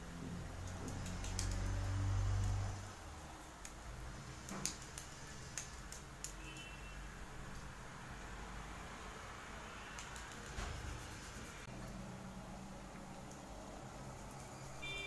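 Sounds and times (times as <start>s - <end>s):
fingers massaging oiled hair: 0.6s - 6.4s.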